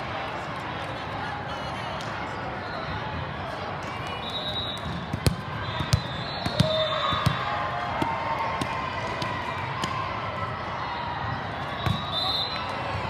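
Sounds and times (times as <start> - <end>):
murmur of spectators' voices: 0.0 - 13.0
volleyball thuds: 4.8 - 10.0.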